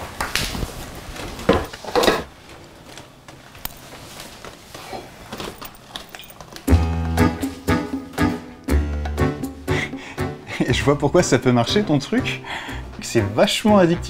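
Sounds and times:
objects clattering in cupboard: 0:01.4 - 0:02.3.

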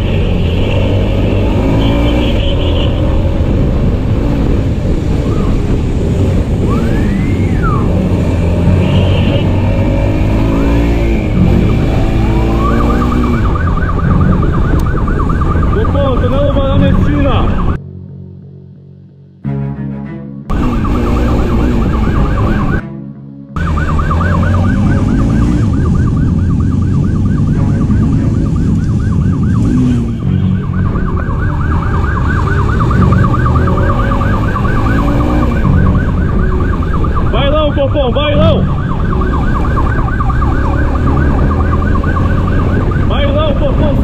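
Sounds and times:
motorcycle engine: 0:00.0 - 0:16.9, 0:20.5 - 0:22.9, 0:23.6 - 0:44.0
wind noise: 0:00.0 - 0:17.8, 0:24.5 - 0:44.0
siren yelping: 0:06.5 - 0:17.8, 0:20.5 - 0:22.9, 0:23.6 - 0:44.0.

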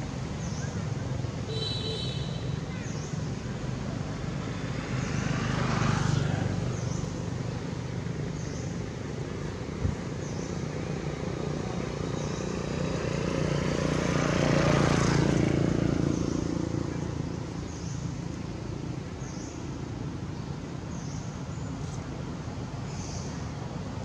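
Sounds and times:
vehicle engine hum: 0:00.0 - 0:24.0.

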